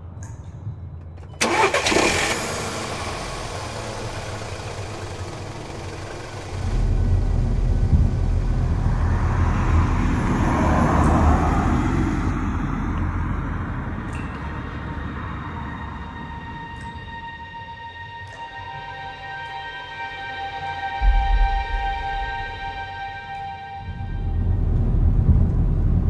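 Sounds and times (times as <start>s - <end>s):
car engine starting and running: 1.0s - 13.5s, 21.0s - 26.0s.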